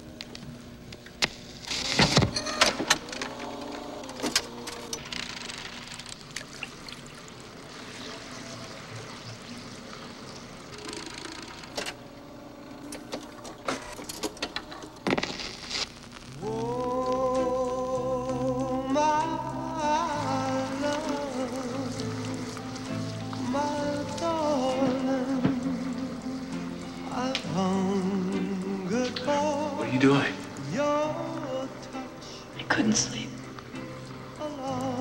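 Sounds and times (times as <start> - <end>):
steady hiss: 0.0 - 35.0
record changer clicks and clunks: 0.2 - 6.4, 10.8 - 12.0, 12.8 - 16.2.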